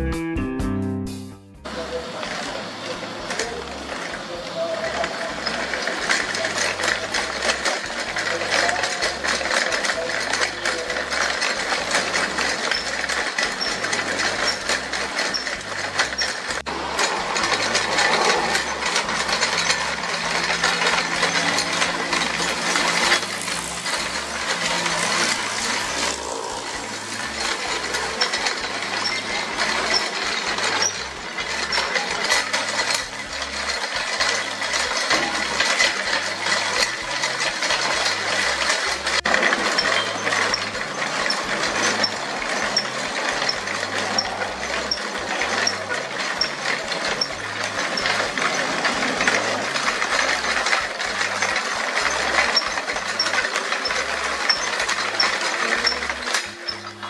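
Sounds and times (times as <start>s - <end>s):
bicycle chains rattling and clicking: 1.6s - 57.0s.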